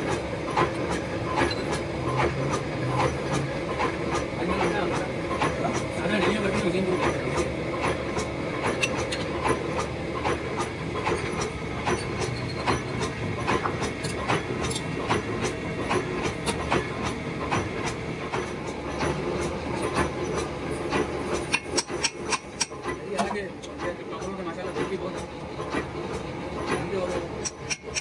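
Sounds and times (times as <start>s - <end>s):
gear-cutting machine humming: 0.0s - 28.0s
sharp metallic clicks and knocks: 7.0s - 28.0s.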